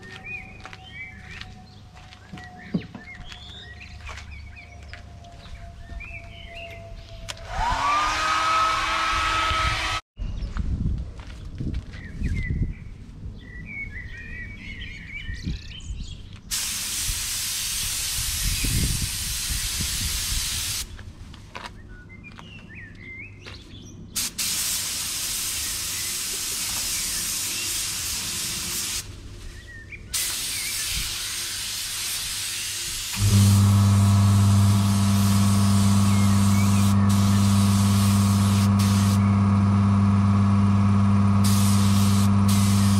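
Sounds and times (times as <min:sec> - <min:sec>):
birds chirping: 0:00.0 - 0:07.5, 0:29.4 - 0:31.7, 0:35.9 - 0:38.1
loud machine humming: 0:07.4 - 0:10.0, 0:33.1 - 0:42.9
paint spray gun hissing: 0:16.5 - 0:20.9, 0:24.2 - 0:29.1, 0:30.2 - 0:42.9.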